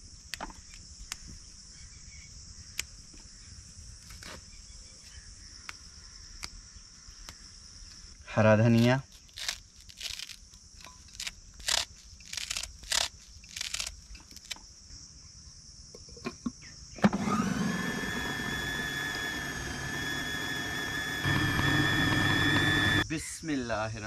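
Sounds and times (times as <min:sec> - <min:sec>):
food processor motor whining: 0:17.0 - 0:23.0.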